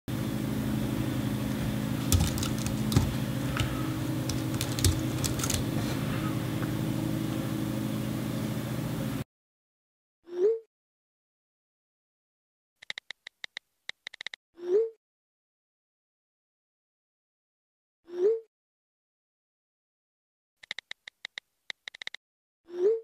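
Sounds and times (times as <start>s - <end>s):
steady low hum: 0.1s - 9.2s
keyboard and mouse clicks: 2.0s - 5.7s, 12.8s - 14.4s, 20.6s - 22.2s.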